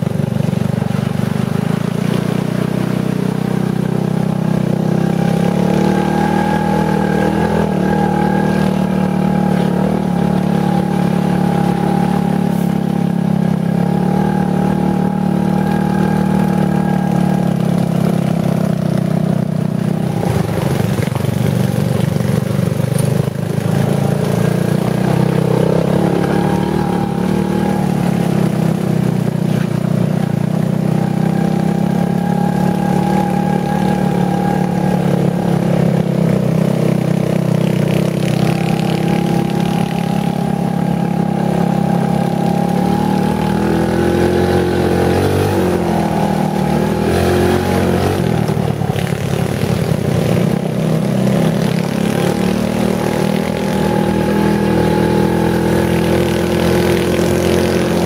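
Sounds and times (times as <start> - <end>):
off-road vehicle engine running: 0.0 - 58.0.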